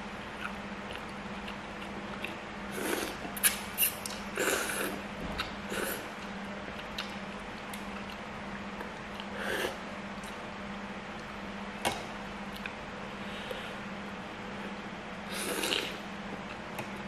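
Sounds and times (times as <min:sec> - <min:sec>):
chewing: 0:00.4 - 0:08.2
person slurping noodles: 0:02.7 - 0:05.0, 0:15.3 - 0:16.0.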